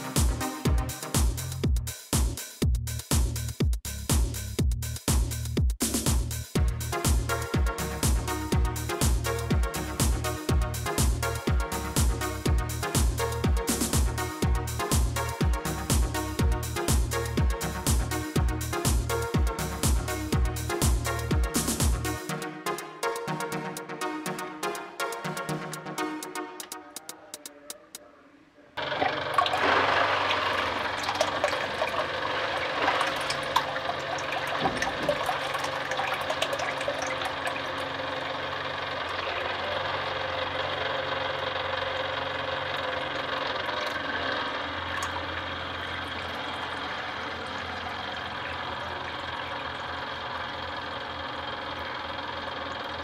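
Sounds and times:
water pouring and splashing: 28.8 - 38.4, 44.8 - 50.0
small motor running: 28.8 - 53.0.

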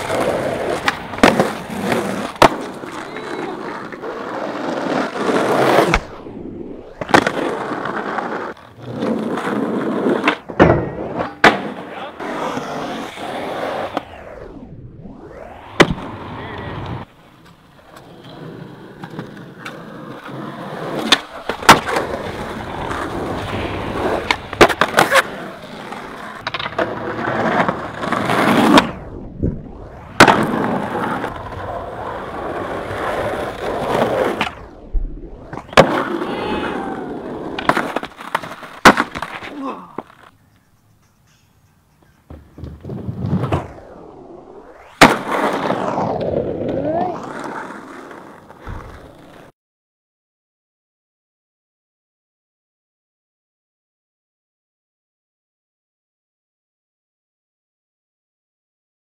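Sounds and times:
skateboard clacking: 0.0 - 5.1, 16.6 - 28.8, 35.7 - 40.8
skateboard wheels rolling on concrete: 0.0 - 41.0, 41.8 - 49.5.

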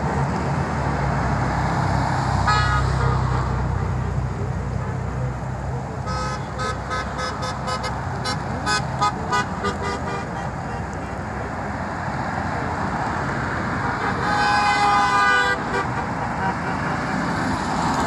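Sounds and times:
road traffic noise: 0.0 - 18.0
car horns honking: 2.4 - 4.0, 6.0 - 11.3, 13.8 - 17.8
long horn blast: 6.0 - 11.0, 13.9 - 17.4.

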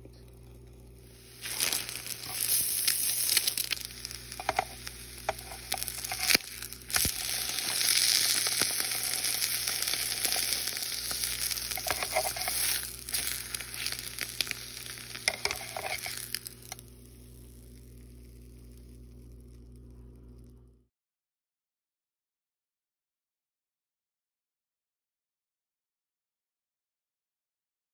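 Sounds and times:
faint low hum: 0.0 - 20.9
egg sizzling in oil: 0.3 - 19.6
spatula scraping pan: 1.3 - 16.8.

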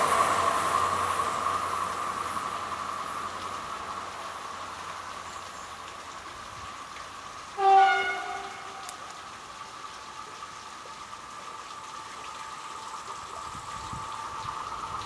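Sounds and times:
freight train rolling: 0.0 - 4.8, 7.5 - 9.4
train horn blast: 7.6 - 9.2.

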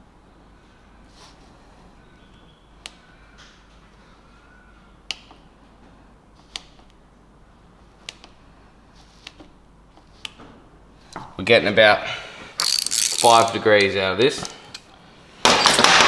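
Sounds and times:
socket ratchet clicking: 12.6 - 13.6.

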